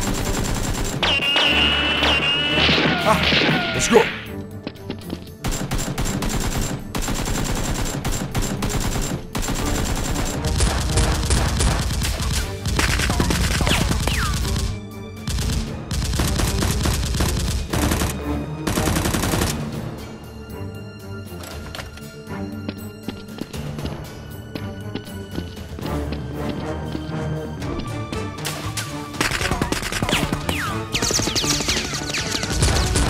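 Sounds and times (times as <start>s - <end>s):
background music: 0.0s - 33.0s
automatic gunfire sound effects: 5.4s - 14.7s, 29.2s - 33.0s.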